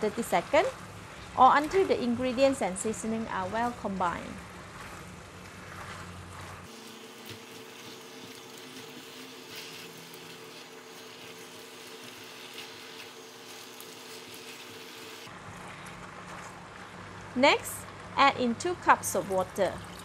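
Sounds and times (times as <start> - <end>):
spatula scraping wok: 3.1 - 16.4
food sizzling in wok: 6.6 - 15.3.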